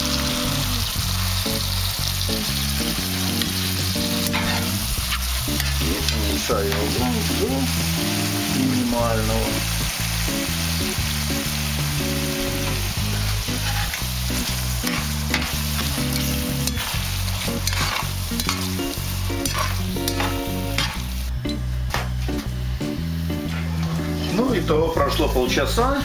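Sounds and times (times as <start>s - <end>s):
mushrooms sizzling in a frying pan: 0.0s - 26.0s
utensil clicking and scraping pan: 13.6s - 14.0s, 17.6s - 18.7s, 19.4s - 21.0s.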